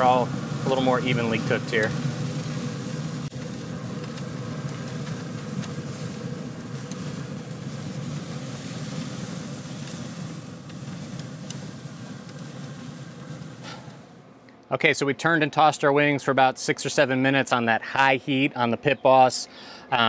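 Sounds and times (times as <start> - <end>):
chicken wings sizzling on grill: 0.0 - 14.3
grill humming: 0.0 - 14.5.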